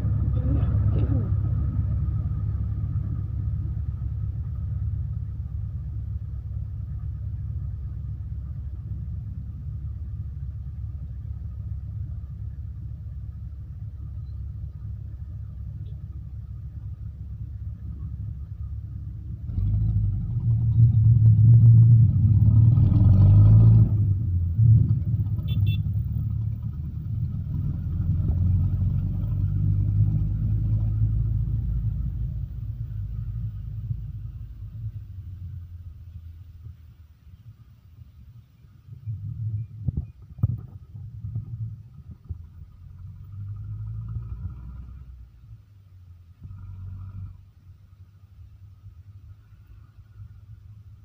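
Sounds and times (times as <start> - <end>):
vehicle engine rumbling: 0.0 - 51.0.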